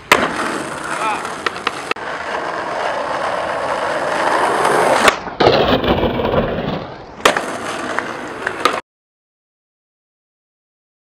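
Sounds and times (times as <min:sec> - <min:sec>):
skateboard clack: 0:00.0 - 0:08.8
skateboard scraping concrete ledge: 0:00.0 - 0:08.8
skateboard wheels rolling on asphalt: 0:00.0 - 0:08.8.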